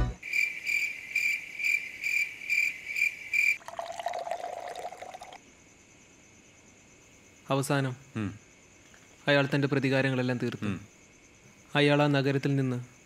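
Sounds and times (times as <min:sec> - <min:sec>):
crickets chirping: 0:00.2 - 0:13.0
liquor poured into a glass: 0:03.6 - 0:05.4.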